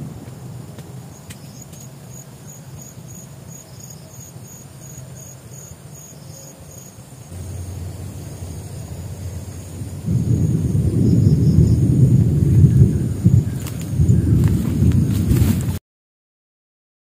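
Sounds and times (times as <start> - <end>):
low rumble: 0.0 - 1.3, 7.1 - 15.8
insect chirping: 0.0 - 15.6.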